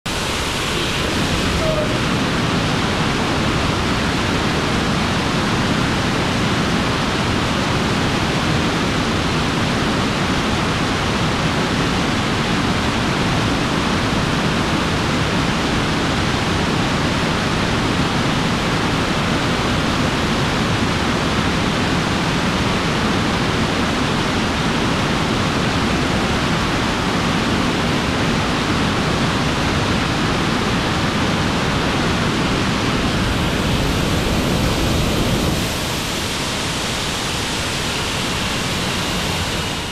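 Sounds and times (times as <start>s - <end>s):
rocket engine roaring: 0.1s - 7.2s, 29.8s - 39.9s.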